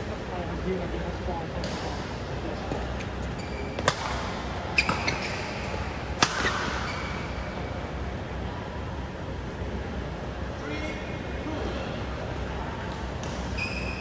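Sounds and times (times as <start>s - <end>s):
rackets hitting shuttlecock: 1.6s - 2.1s, 3.8s - 6.9s, 12.9s - 13.6s.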